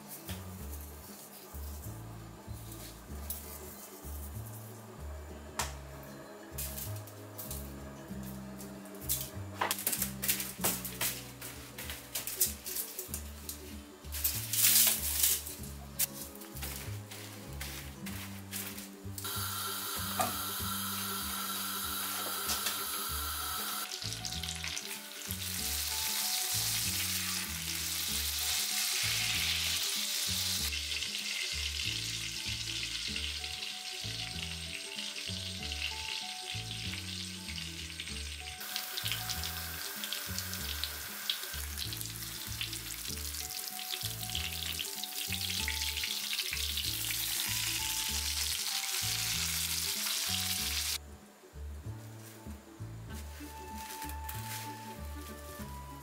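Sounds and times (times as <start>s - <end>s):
meat sizzling in a frying pan: 19.3s - 51.0s.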